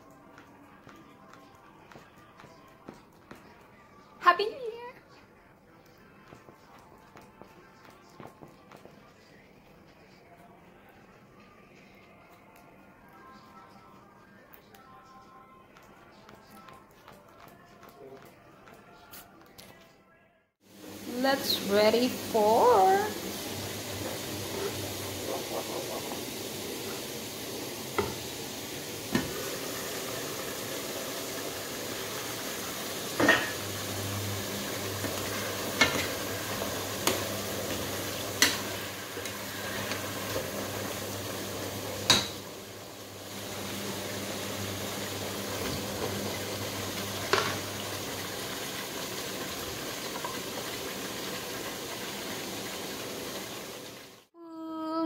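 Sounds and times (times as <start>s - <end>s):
wooden spoon stirring: 0.0s - 4.2s
pots simmering with bubbling hiss: 0.0s - 19.0s, 20.6s - 54.4s
utensils knocking against pots: 33.2s - 33.7s, 34.9s - 40.5s, 42.0s - 42.5s, 47.2s - 47.7s.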